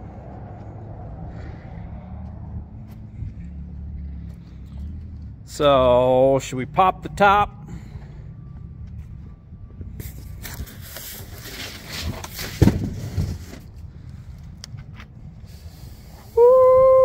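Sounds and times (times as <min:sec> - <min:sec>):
cardboard scraping and rustling: 0:10.3 - 0:13.7
thump: 0:12.5 - 0:13.2
loud held vocal call: 0:16.4 - 0:17.0.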